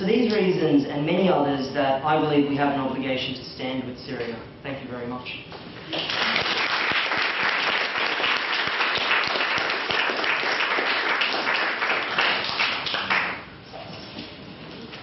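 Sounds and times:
audience applauding: 5.9 - 13.4.

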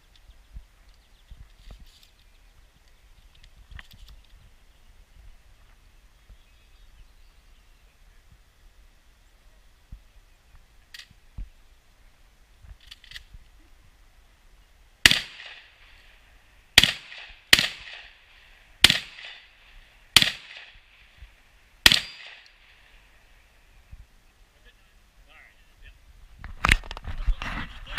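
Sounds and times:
shotgun shots: 15.0 - 15.8, 16.8 - 18.2, 18.8 - 19.5, 20.1 - 20.9, 21.8 - 22.6.

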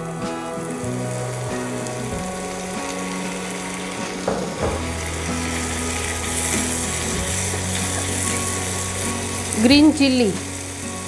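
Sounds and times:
soft background music: 0.0 - 11.0
vegetables sizzling in hot oil: 0.0 - 11.0
knocks: 4.3 - 5.0.

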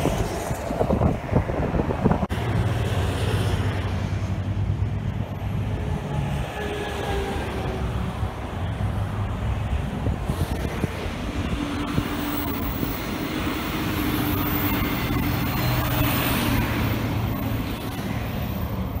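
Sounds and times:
electric train passing: 0.0 - 19.0
freeway traffic: 0.0 - 19.0
truck engine hum: 0.0 - 19.0.

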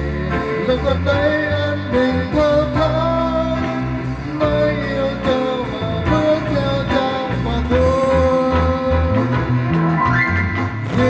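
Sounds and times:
electric guitar slow melody: 0.0 - 11.0
low bass line: 0.0 - 11.0.

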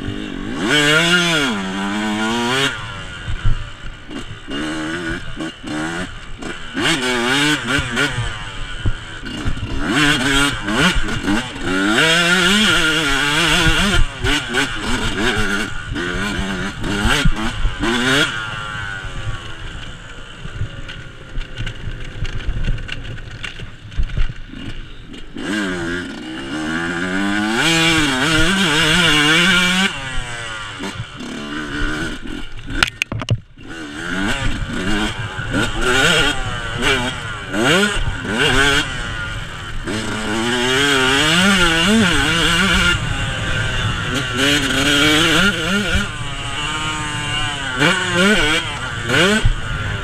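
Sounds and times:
dirt bike engine revving: 0.0 - 50.0
knocks: 32.8 - 33.5.

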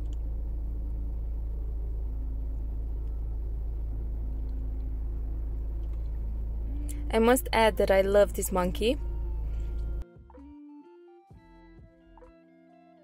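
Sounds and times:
faint held tones: 0.0 - 10.0
steady low hum: 0.0 - 10.0.

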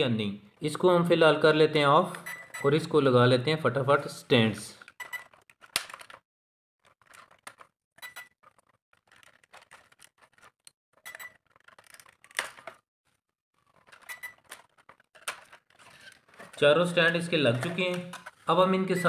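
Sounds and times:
hard plastic clicking and rattling: 11.4 - 12.8, 13.6 - 18.4.

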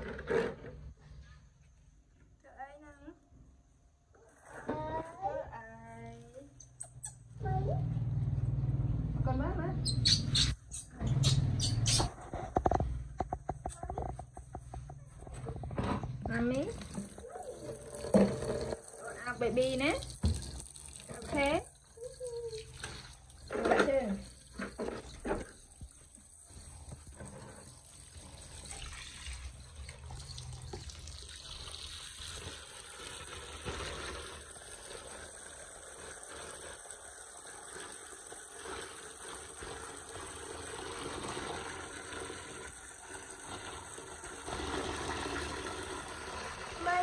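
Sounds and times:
tap water running: 10.0 - 47.0.

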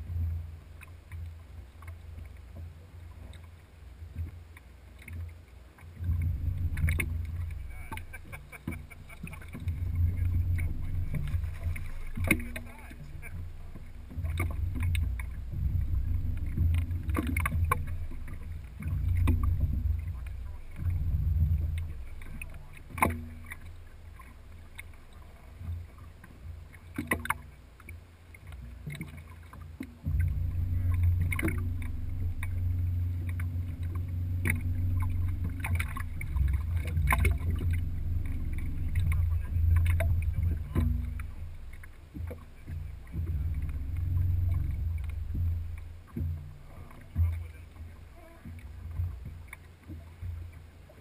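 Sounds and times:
boat engine rumble: 0.0 - 51.0
sharp knocks: 30.0 - 47.6.

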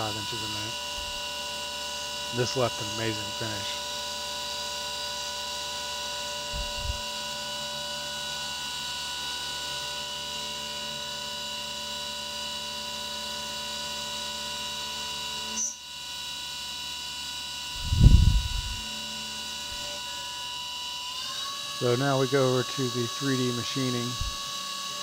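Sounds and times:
milling machine whine: 0.0 - 25.0.

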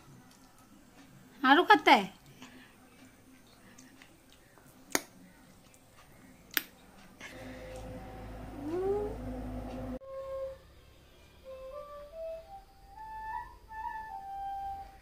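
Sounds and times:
soft flute music: 7.4 - 15.0.

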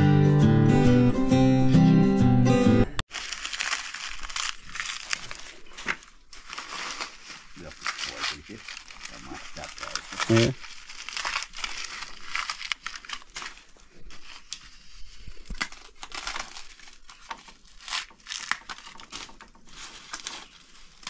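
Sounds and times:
corn husks crinkling and tearing: 3.1 - 21.0.

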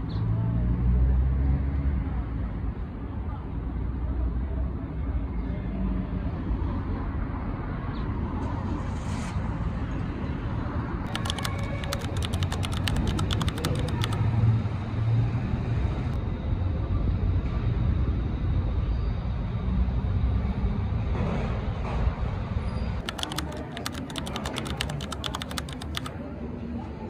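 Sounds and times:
rapid keyboard clicking: 11.1 - 14.2, 23.0 - 26.2.

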